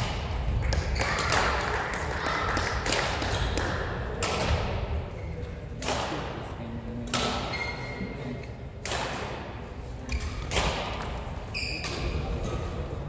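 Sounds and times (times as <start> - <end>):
badminton racket hitting shuttlecock: 2.8 - 4.8, 5.8 - 6.4, 7.0 - 7.6, 8.8 - 11.2.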